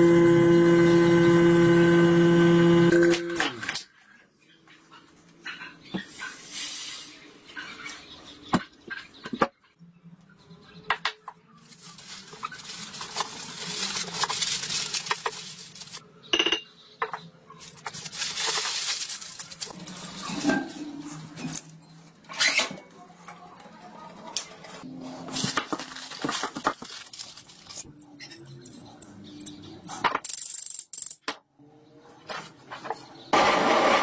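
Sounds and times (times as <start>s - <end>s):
aluminium foil crinkling: 11.6s - 16.0s, 17.6s - 21.6s, 25.3s - 27.9s.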